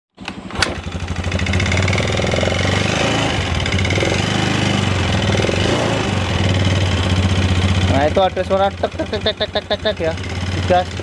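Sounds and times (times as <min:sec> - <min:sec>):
scooter engine knocking: 0:00.3 - 0:02.8, 0:03.4 - 0:11.0
man talking: 0:07.9 - 0:11.0.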